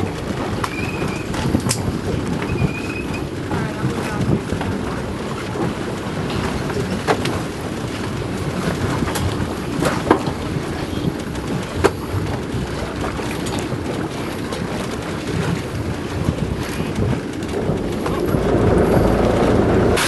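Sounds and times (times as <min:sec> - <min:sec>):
water sloshing around a boat: 0:00.0 - 0:20.0
wind buffeting the microphone: 0:00.0 - 0:20.0.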